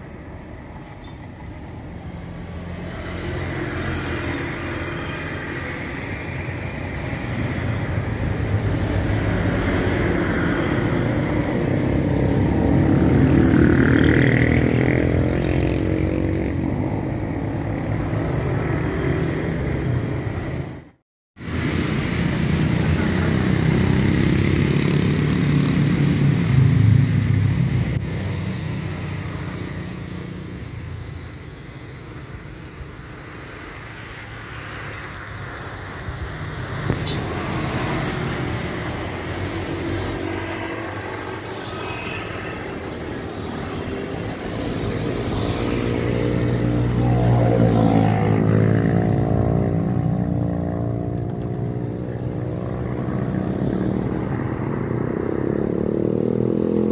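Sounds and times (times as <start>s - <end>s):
jet airliner taking off: 25.9s - 50.5s.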